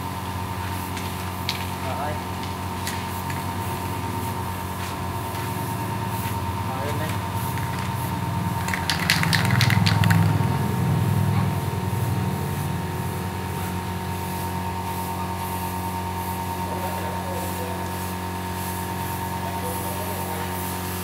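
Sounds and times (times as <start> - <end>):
steady machine hum: 0.0 - 21.0
spray can mixing ball rattling: 7.0 - 10.9.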